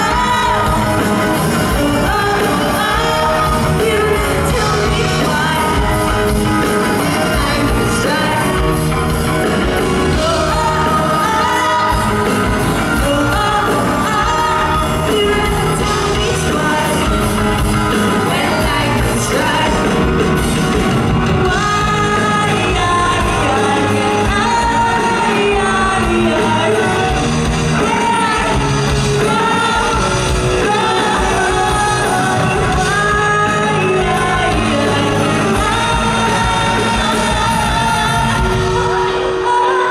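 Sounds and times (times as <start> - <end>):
bass guitar: 0.0 - 39.9
drums: 0.0 - 39.9
electric guitar: 0.0 - 39.9
woman singing lead: 0.0 - 39.9.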